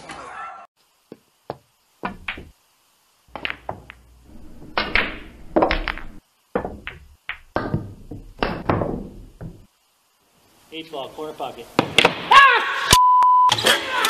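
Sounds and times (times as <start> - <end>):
billiard balls clacking: 2.0 - 2.6, 3.3 - 9.7.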